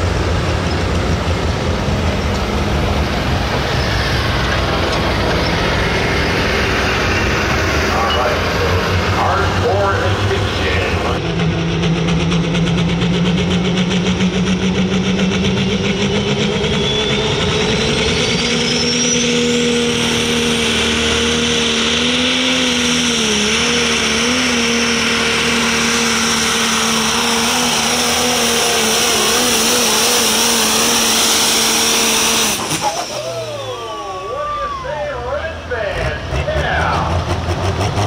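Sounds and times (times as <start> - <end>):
diesel engine running under load: 0.0 - 38.0
high turbo whine: 0.0 - 38.0.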